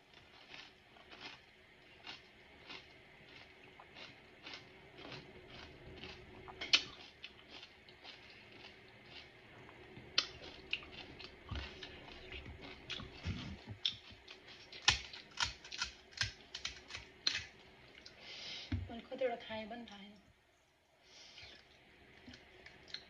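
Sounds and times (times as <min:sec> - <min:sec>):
crunchy food being chewed: 0:00.0 - 0:18.2
fingers cracking crisp shell: 0:14.8 - 0:17.5.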